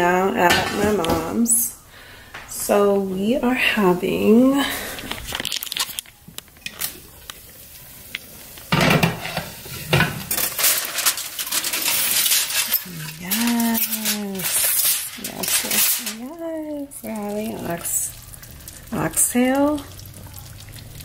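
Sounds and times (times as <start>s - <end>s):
aluminium foil crinkling: 4.8s - 8.7s, 10.2s - 21.0s.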